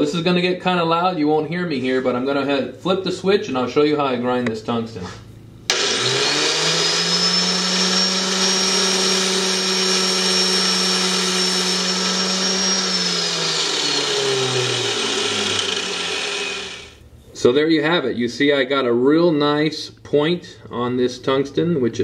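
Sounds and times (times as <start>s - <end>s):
angle grinder whining: 5.7s - 17.0s
electrode grinding against wheel: 5.7s - 17.0s.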